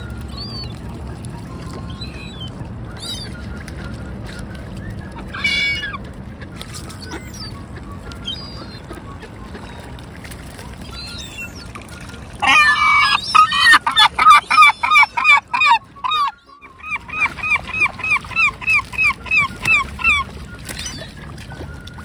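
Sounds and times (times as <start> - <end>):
gull long call: 5.1 - 6.0, 12.4 - 20.6.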